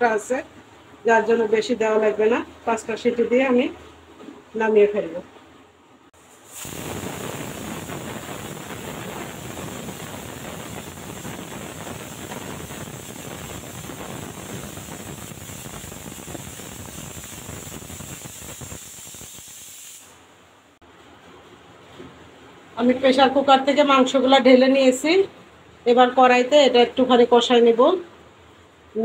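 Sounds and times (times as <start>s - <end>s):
pressure cooker whistling: 6.6s - 19.8s.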